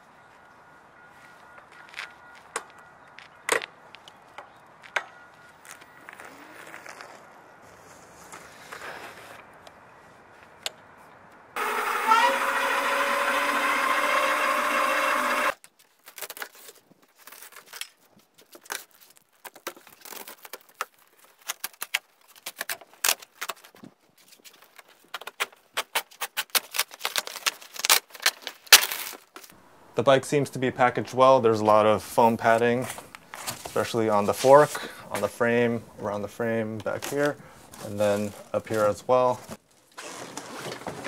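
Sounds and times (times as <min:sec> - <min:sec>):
cardboard box being opened: 0:39.4 - 0:41.0.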